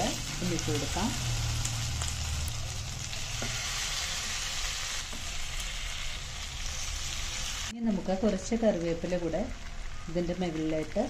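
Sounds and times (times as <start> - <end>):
chicken sizzling in hot oil: 0.0 - 7.7.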